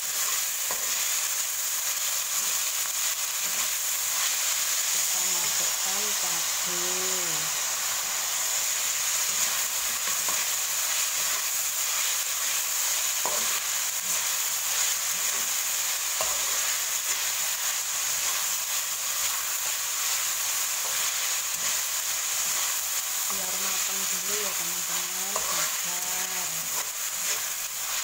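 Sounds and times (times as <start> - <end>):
spatula scraping a pan: 0.0 - 1.3, 9.2 - 23.2, 25.3 - 25.8, 26.5 - 28.0
food sizzling in hot oil: 0.0 - 28.0.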